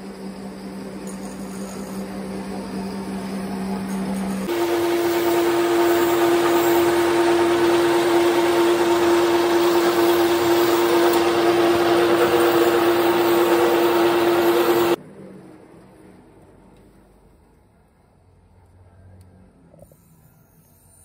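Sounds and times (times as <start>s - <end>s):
metal lathe whining: 1.0s - 15.0s.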